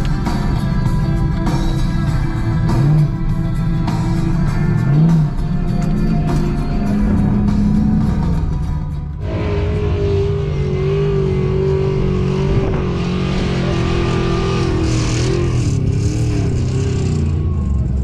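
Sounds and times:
off-road vehicle engine running hard: 0.0 - 18.0.

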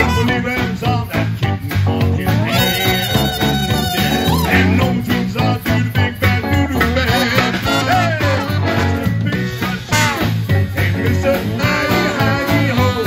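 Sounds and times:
saxophones and trumpet: 0.0 - 0.7, 2.3 - 5.2, 6.5 - 13.0
big band playing swing: 0.0 - 13.0
drum kit beat: 0.0 - 13.0
keyboard: 0.0 - 13.0.

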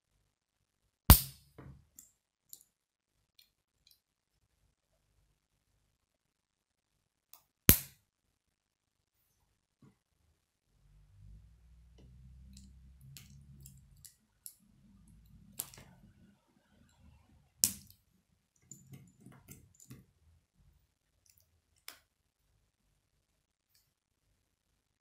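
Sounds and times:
plastic pieces snapping together: 15.5 - 15.9, 17.6 - 18.0.

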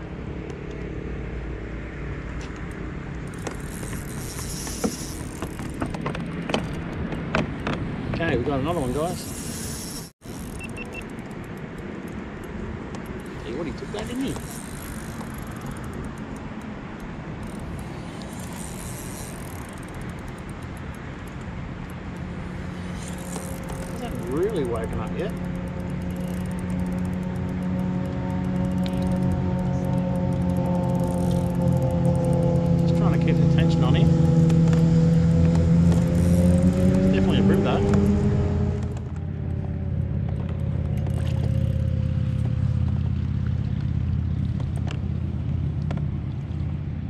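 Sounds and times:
low engine rumble: 0.0 - 47.0
fast high-pitched ticking: 9.2 - 11.8.

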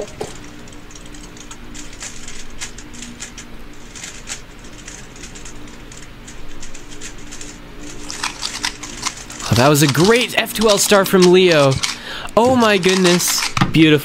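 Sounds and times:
plastic puzzle cube clicking: 4.0 - 12.0, 12.6 - 13.6.

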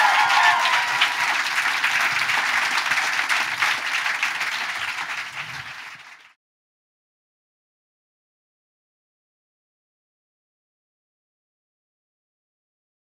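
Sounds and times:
person whooping: 0.0 - 1.4
audience applauding: 0.0 - 6.4.

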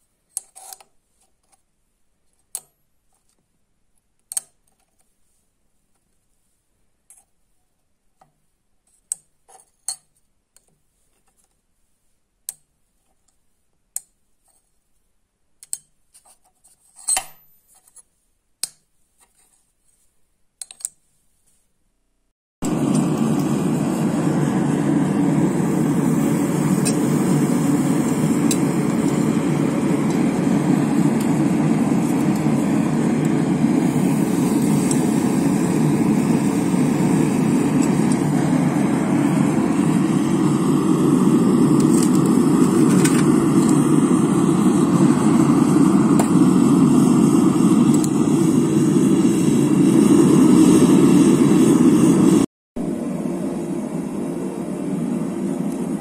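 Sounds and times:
forge roaring: 22.6 - 56.0.

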